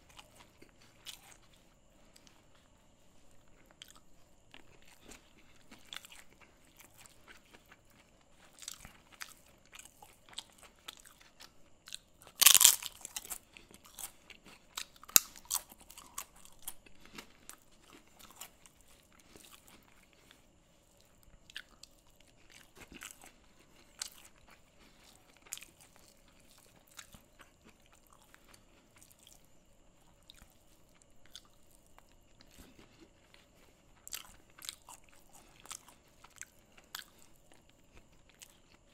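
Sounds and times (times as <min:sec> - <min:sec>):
chewing: 0:00.0 - 0:38.9
loud crunch: 0:12.4 - 0:14.0.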